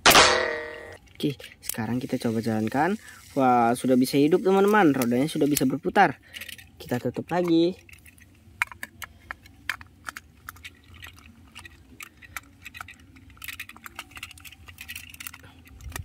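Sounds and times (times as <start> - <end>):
small plastic clicks and rattles: 4.5 - 16.0.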